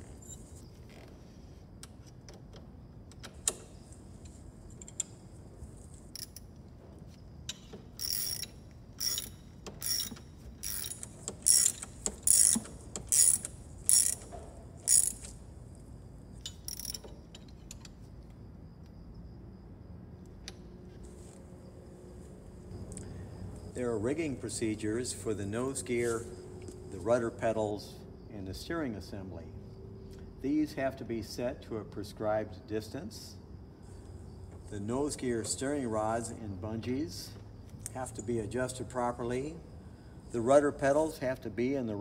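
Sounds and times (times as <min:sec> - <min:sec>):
ratchet wrench clicking: 0:06.1 - 0:06.5, 0:07.5 - 0:15.4, 0:16.4 - 0:17.9.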